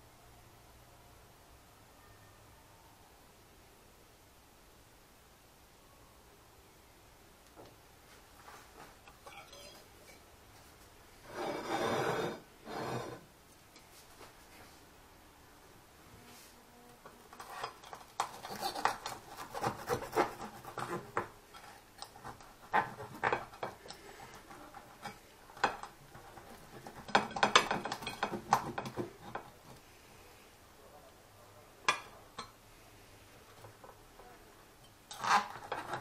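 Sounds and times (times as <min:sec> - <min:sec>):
knife scraping a ceramic plate: 0:11.2 - 0:13.2, 0:17.3 - 0:29.4, 0:35.1 - 0:36.0.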